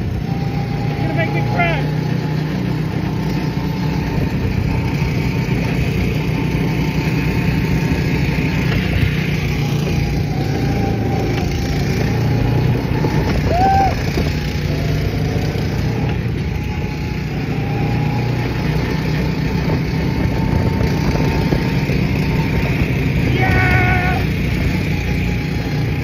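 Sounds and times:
car road and engine noise: 0.0s - 26.0s.

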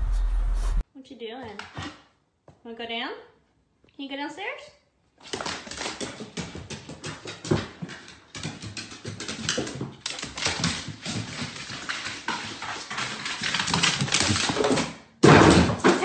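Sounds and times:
dog claws clicking on stairs: 5.2s - 16.0s.

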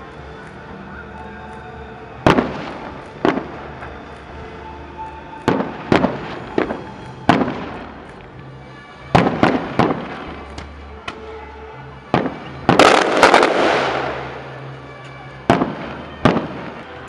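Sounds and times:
firework bangs: 2.2s - 4.1s, 5.4s - 8.0s, 9.1s - 11.3s, 12.1s - 14.6s, 15.4s - 17.0s.

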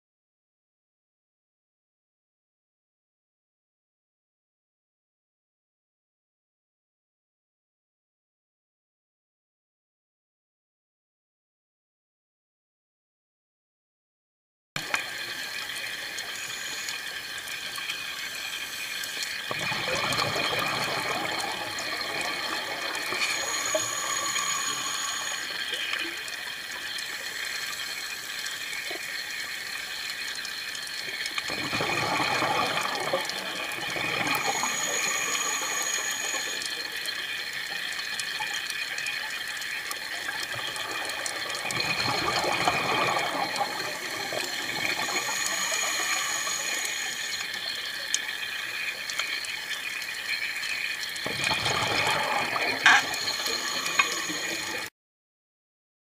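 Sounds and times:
underwater hiss: 15.0s - 30.1s, 31.8s - 37.3s, 42.1s - 47.7s, 51.6s - 54.9s
diver's exhaled bubbles: 19.5s - 25.4s, 31.5s - 35.5s, 40.6s - 46.2s, 51.3s - 54.7s.

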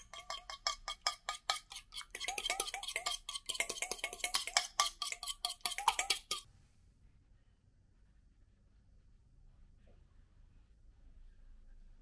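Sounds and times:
fork beating egg in metal bowl: 0.0s - 6.5s.

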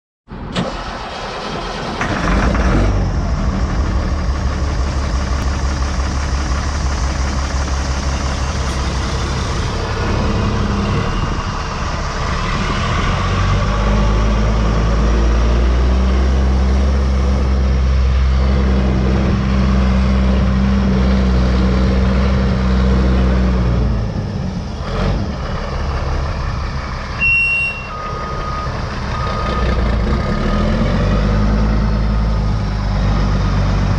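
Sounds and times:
diesel truck engine running: 0.3s - 33.9s
backup alarm beeping: 27.2s - 29.7s.

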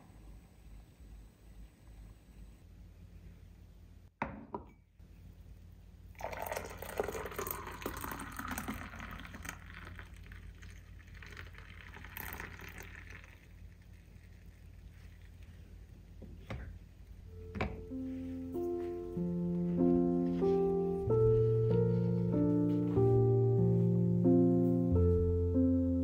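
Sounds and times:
water pouring into container: 6.2s - 15.5s
steady low hum: 9.2s - 26.0s.

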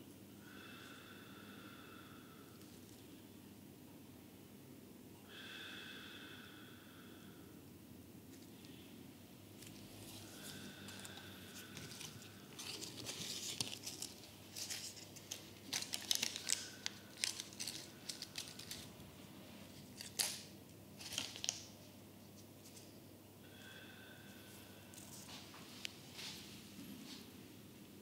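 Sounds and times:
crinkling and rustling: 9.6s - 19.0s, 19.7s - 21.8s.

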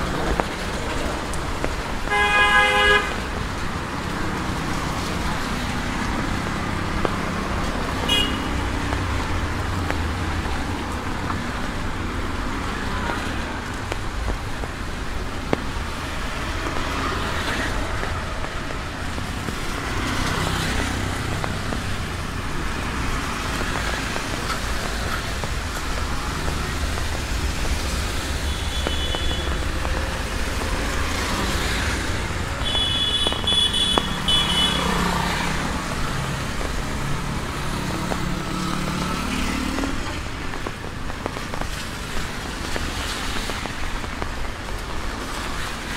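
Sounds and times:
rain hiss: 0.0s - 45.9s
tyres hissing on wet asphalt: 0.0s - 45.9s
vehicle horn toots: 2.1s - 3.2s, 8.1s - 8.6s, 32.6s - 34.9s.

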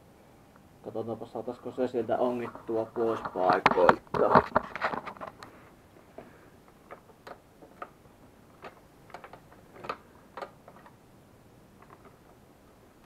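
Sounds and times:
small clicks and taps on plastic: 8.6s - 11.0s.

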